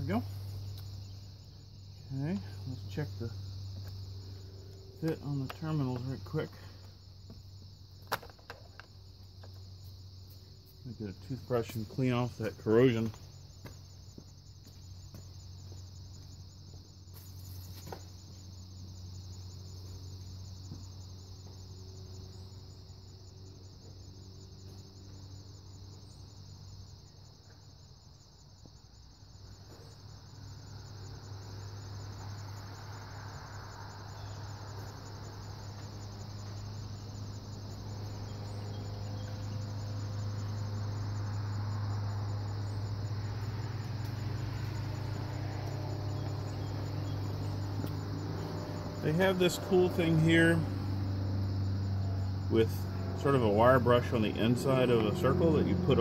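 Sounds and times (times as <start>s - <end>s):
insects chirring: 0.0s - 56.0s
low engine hum: 34.4s - 56.0s.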